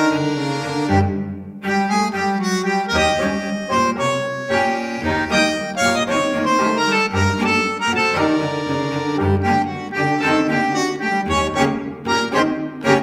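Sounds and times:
instrumental background music: 0.0s - 13.0s.

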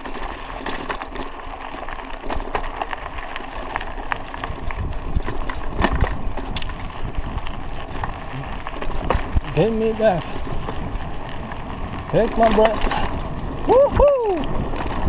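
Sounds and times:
bike knocks and rattles: 0.0s - 15.0s
bike tyre rumble on dirt: 0.0s - 15.0s
wind on microphone: 4.5s - 15.0s.

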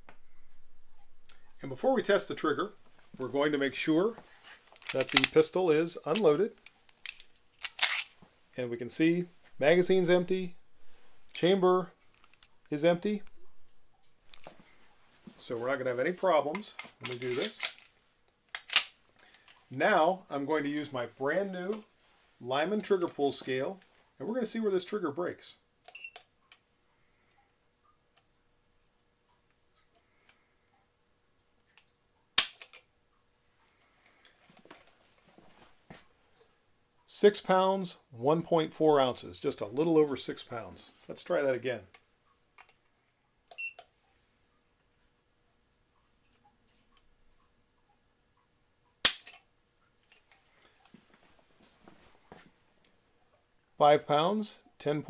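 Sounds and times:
faint handling: 0.0s - 18.0s
pistol hammer click: 18.6s - 18.9s, 49.1s - 49.4s.

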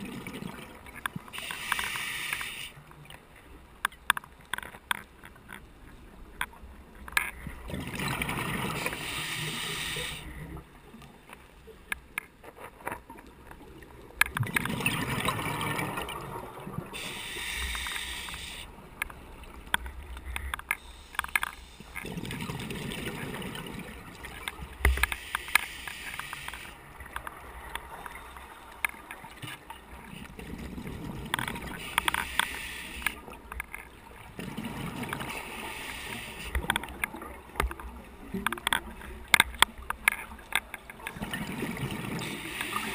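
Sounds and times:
hissing regulator inhalation: 1.4s - 2.8s, 8.8s - 10.3s, 17.0s - 18.7s, 31.8s - 33.2s, 35.4s - 36.6s.

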